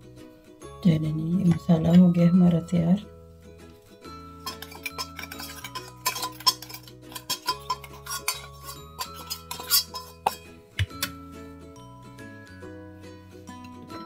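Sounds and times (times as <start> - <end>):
soft background music: 0.0 - 14.0
metal spoon scraping and tapping jar: 4.3 - 11.2.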